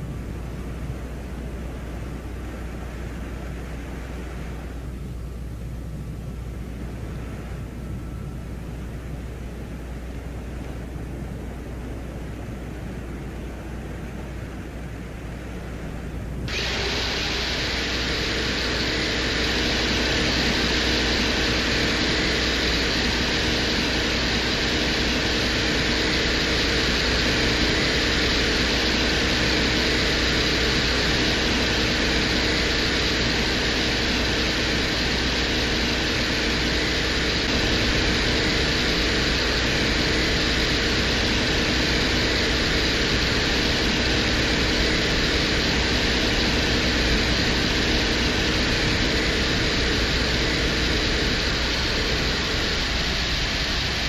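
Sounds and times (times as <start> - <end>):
low hum: 0.0 - 54.0
mechanical hiss: 16.5 - 54.0.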